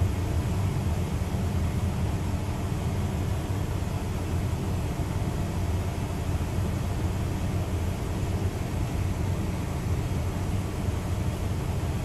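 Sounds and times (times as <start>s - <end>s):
low rumble and hiss: 0.0s - 12.0s.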